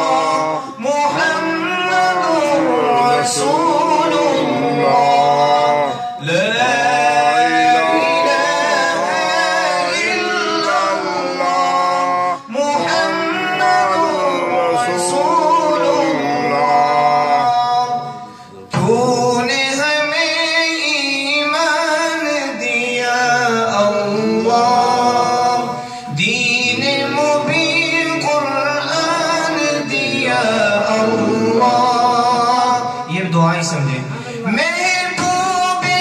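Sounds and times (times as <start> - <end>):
man chanting into a microphone: 0.0 - 8.2, 9.9 - 36.0.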